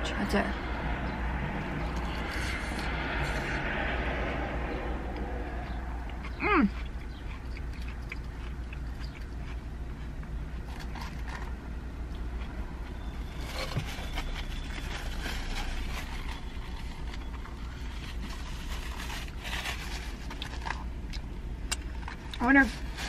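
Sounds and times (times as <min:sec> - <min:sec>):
low car cabin hum: 0:00.0 - 0:23.0
chewing: 0:05.2 - 0:14.9.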